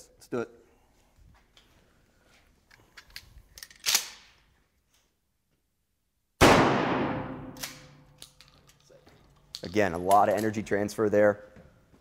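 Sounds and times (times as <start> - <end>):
shotgun blast: 6.4 - 7.9.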